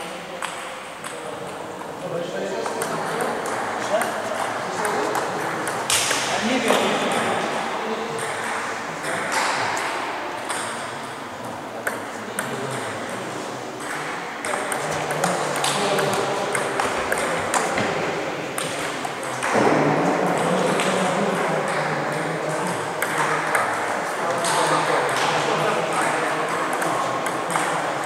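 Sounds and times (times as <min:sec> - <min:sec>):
table tennis balls clicking: 0:02.6 - 0:07.4, 0:13.8 - 0:18.0, 0:25.9 - 0:28.0.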